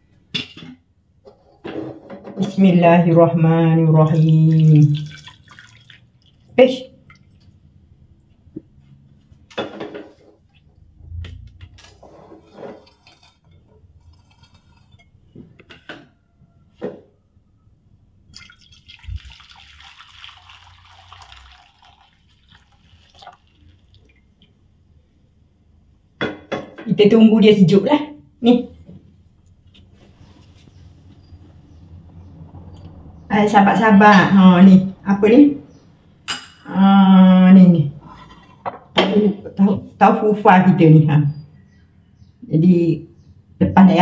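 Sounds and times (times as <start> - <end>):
liquid trickling and dripping: 4.0 - 8.3, 18.3 - 24.7.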